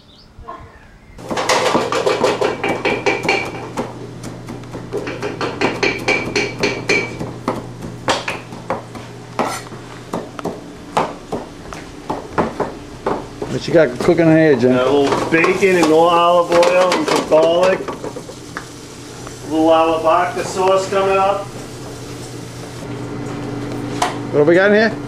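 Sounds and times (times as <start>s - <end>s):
knife chopping on cutting board: 1.2s - 13.5s.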